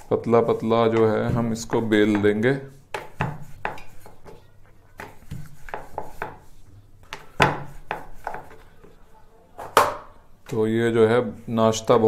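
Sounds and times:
rolling pin rubbing dough: 0.0 - 9.3.

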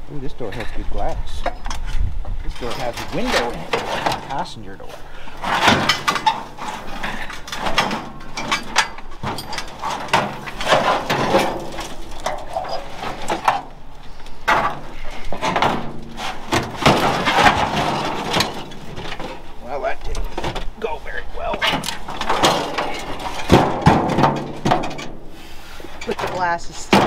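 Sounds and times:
metal scraping and clanking: 0.4 - 27.0
metal door knocks: 21.6 - 25.0.

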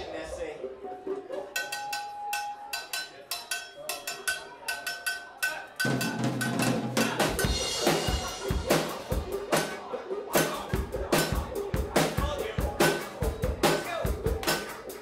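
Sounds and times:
drum ticks: 1.6 - 15.0
rock band playing: 5.8 - 15.0.

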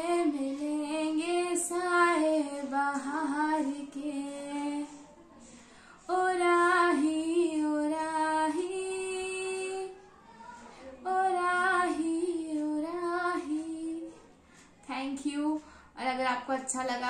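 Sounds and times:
woman singing unaccompanied: 0.0 - 5.1, 6.0 - 10.0, 11.0 - 14.3, 14.9 - 15.6.

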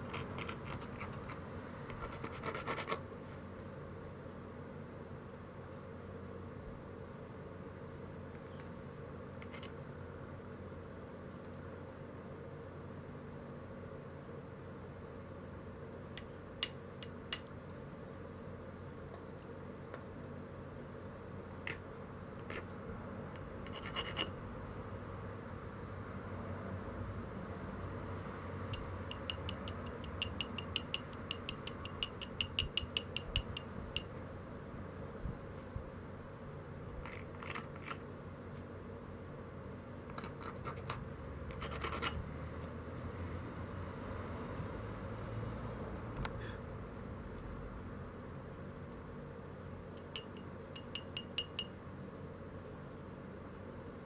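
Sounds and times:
steady low hum: 0.0 - 54.0
stone scraping stone edge: 23.4 - 24.3.

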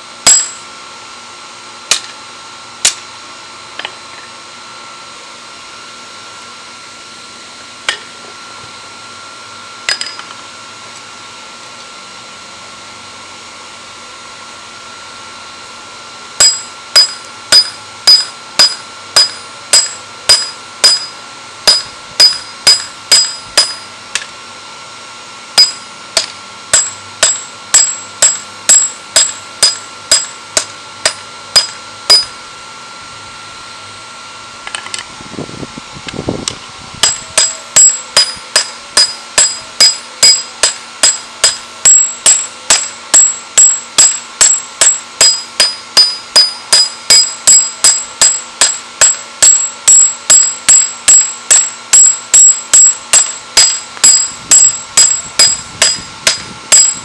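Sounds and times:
hammer ringing on anvil: 0.2 - 0.7, 9.9 - 10.3, 16.4 - 23.9, 25.6 - 32.4, 37.0 - 57.0.

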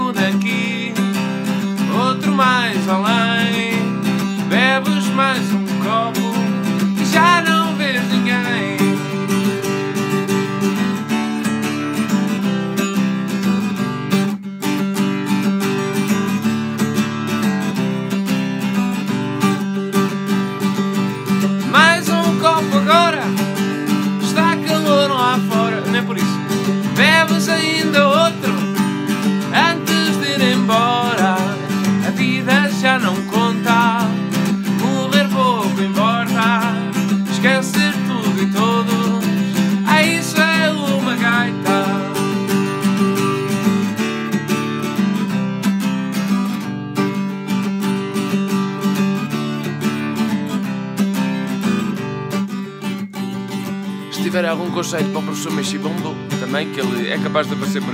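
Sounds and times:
man singing: 0.0 - 9.4, 21.6 - 42.8, 54.1 - 57.9
acoustic guitar strumming: 0.0 - 57.9.

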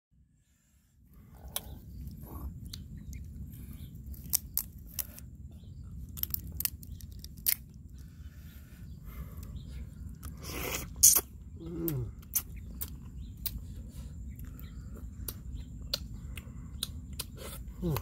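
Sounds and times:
crab shell cracking: 4.1 - 5.2, 6.1 - 7.7.

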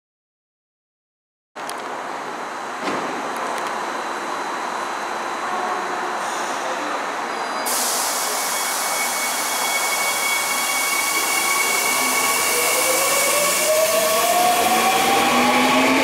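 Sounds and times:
electric train pulling out: 4.2 - 16.0.

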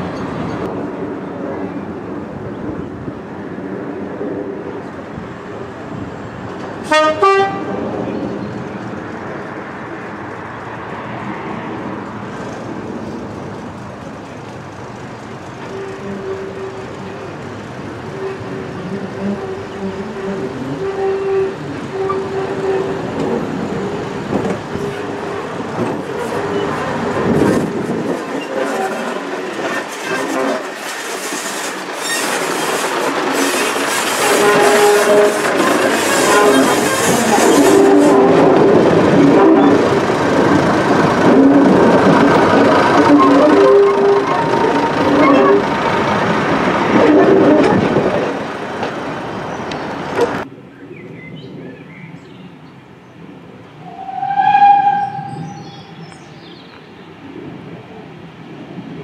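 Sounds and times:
train horn blast: 6.8 - 7.8, 15.7 - 17.2, 18.1 - 23.1, 34.2 - 35.6, 36.2 - 38.5, 43.0 - 45.6, 53.8 - 55.6
diesel train engines running: 11.8 - 50.5
wheels clicking over rail joints: 18.4 - 50.5.

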